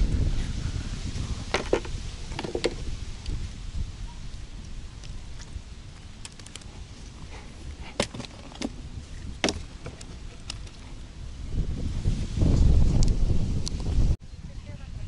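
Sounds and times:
fish flapping on wooden planks: 6.2s - 10.8s.

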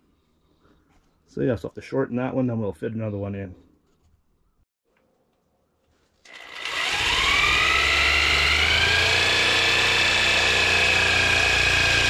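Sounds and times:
motor whine starting up: 6.3s - 12.0s.

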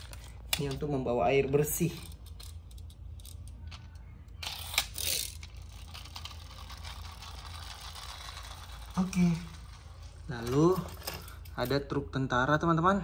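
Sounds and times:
toy flywheel whirring: 1.6s - 11.5s
toy truck gears clicking: 2.0s - 11.4s
toy scraping on tile floor: 4.4s - 11.4s.

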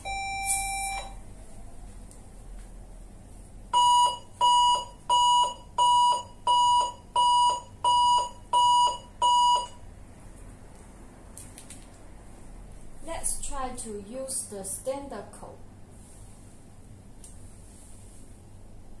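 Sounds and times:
high-pitched alarm beeps: 0.0s - 1.2s, 3.8s - 9.8s.

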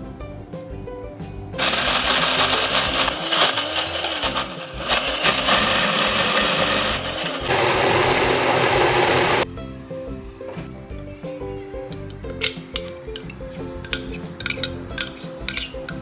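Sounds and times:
blender running: 1.6s - 9.4s.

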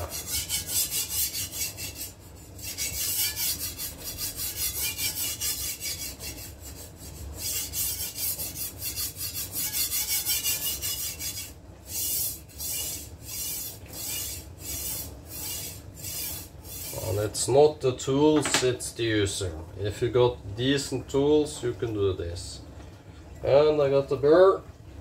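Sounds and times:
knife rasping on whetstone: 0.0s - 17.3s.

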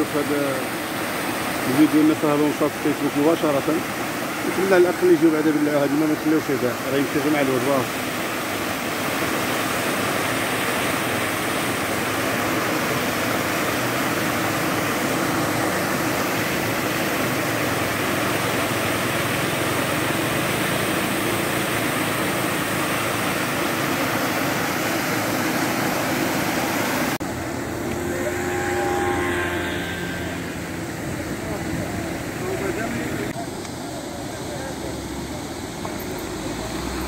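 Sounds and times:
water jet rushing and spraying: 0.0s - 37.0s.

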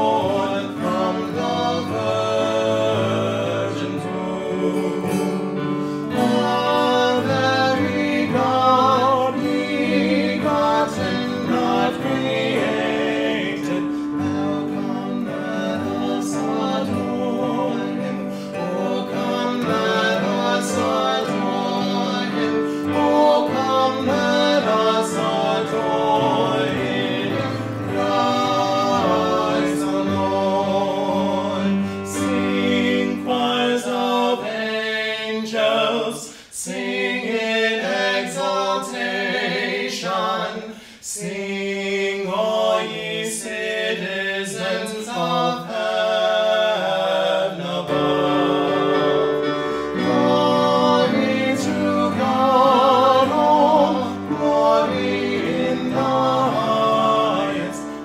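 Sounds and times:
classical guitar: 0.0s - 33.2s
keyboard: 0.0s - 40.2s, 45.3s - 58.0s
man singing: 0.0s - 58.0s.

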